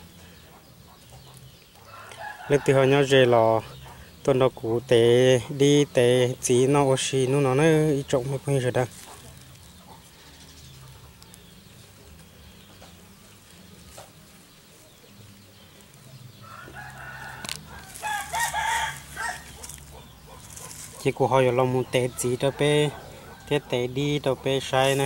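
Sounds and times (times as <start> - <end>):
faint outdoor background: 0.0 - 25.0
rooster crowing: 1.8 - 3.0, 16.4 - 19.8.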